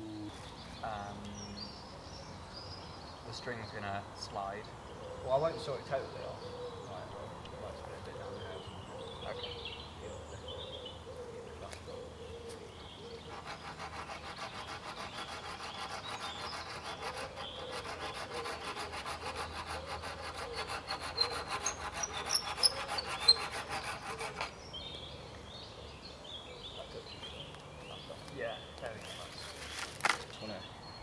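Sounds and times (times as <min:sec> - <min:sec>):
string scraping wooden poles: 0:13.2 - 0:24.6.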